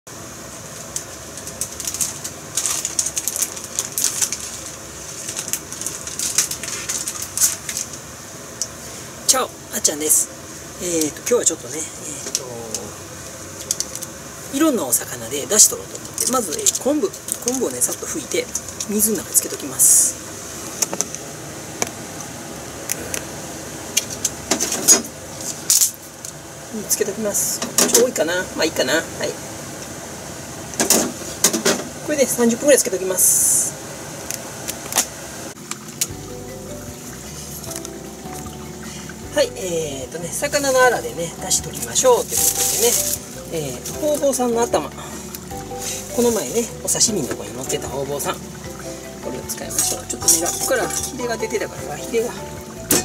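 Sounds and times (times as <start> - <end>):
plastic packaging crinkling: 0.8 - 8.0, 13.6 - 14.2, 15.9 - 19.6, 40.6 - 44.4.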